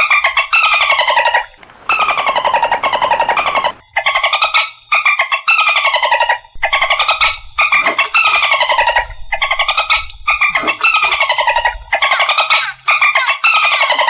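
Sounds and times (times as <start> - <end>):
dolphin squawks: 10.5 - 14.0.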